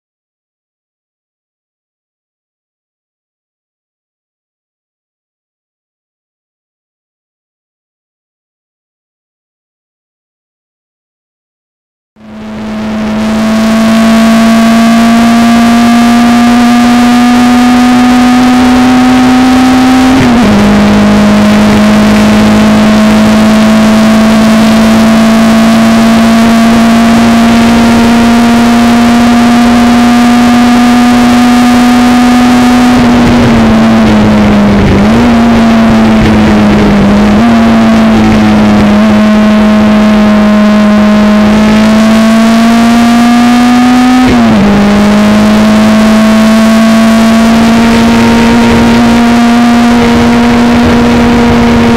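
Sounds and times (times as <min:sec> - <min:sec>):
racing engine at high revs: 0:12.2 - 0:51.9
rushing wind: 0:32.8 - 0:40.6.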